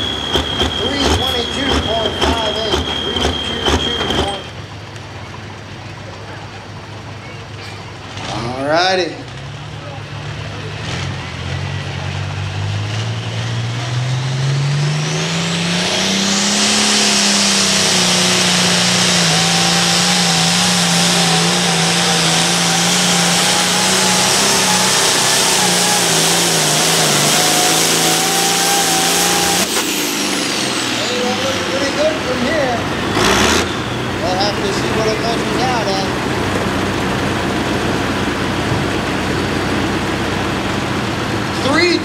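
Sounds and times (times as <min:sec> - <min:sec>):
thin engine whine: 0:00.0 - 0:04.7, 0:10.4 - 0:41.7
tractor diesel engine under load: 0:00.0 - 0:42.0.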